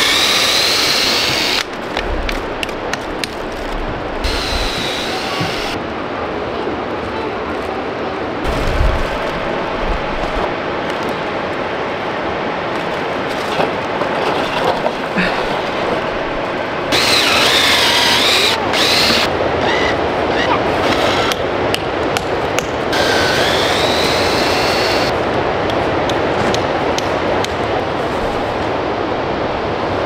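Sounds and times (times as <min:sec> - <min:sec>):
cordless drill whine: 0:00.0 - 0:01.7, 0:04.2 - 0:05.8, 0:16.9 - 0:20.4, 0:22.9 - 0:25.1
steady rushing noise: 0:00.0 - 0:30.0.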